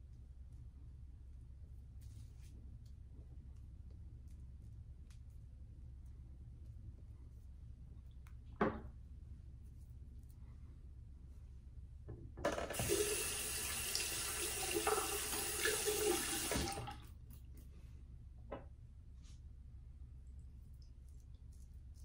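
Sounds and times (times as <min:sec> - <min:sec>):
sink tap running: 0:12.4 - 0:17.0.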